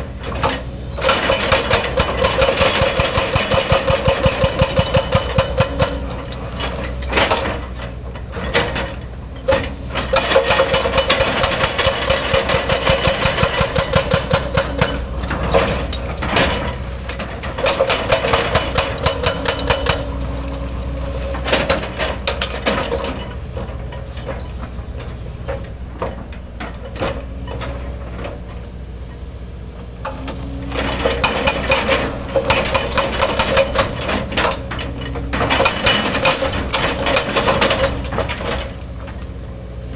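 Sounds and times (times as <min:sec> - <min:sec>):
diesel engine running: 0:00.0 - 0:39.9
hydraulic breaker hammering rock: 0:00.2 - 0:07.8, 0:08.4 - 0:28.2, 0:30.0 - 0:38.8.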